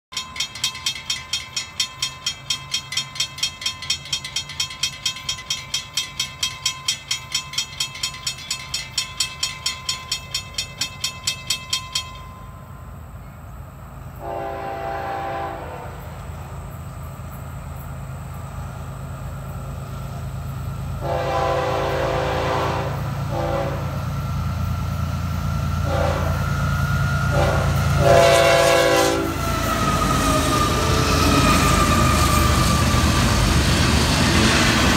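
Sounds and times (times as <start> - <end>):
railroad crossing bell ringing: 0.1 - 15.4, 16.2 - 34.9
locomotive horn blasts: 14.2 - 16.2, 21.0 - 24.1, 25.8 - 26.5, 27.3 - 29.4.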